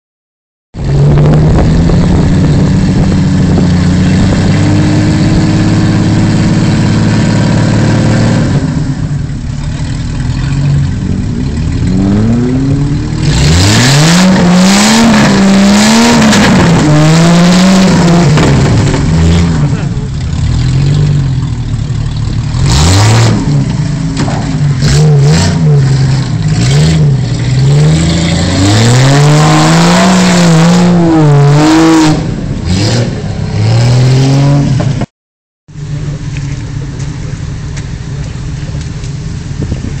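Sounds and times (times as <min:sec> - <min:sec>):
engine running steadily: 0:00.8 - 0:29.5, 0:35.7 - 0:40.0
car engine revving under load: 0:00.8 - 0:35.1.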